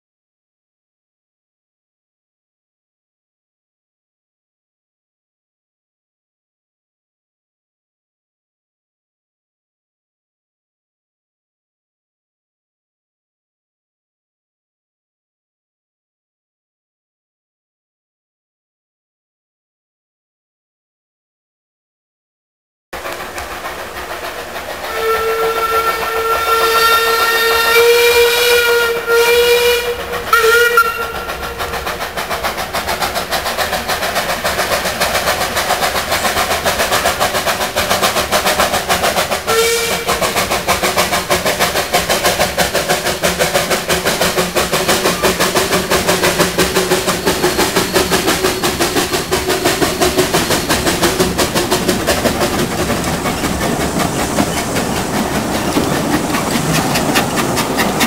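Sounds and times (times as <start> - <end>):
locomotive rhythmic beat: 23.0 - 58.0
steam whistle: 24.9 - 31.7, 39.4 - 40.3.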